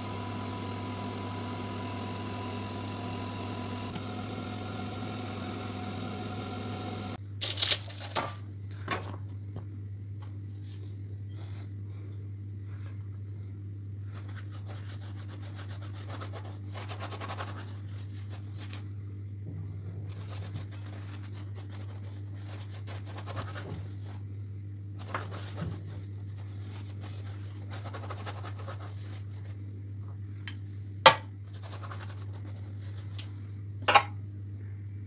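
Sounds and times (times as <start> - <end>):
steady low hum: 0.0 - 7.4.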